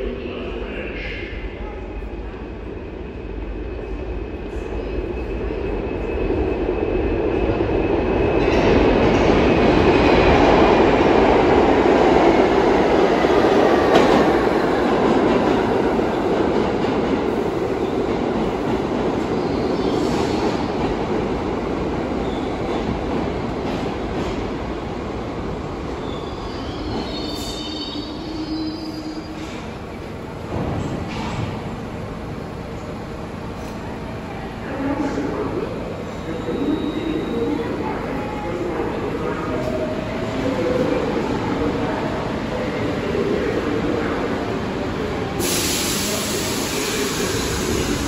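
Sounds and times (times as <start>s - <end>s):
subway train braking to a stop: 0.0s - 48.0s
train brake whine: 45.4s - 48.0s.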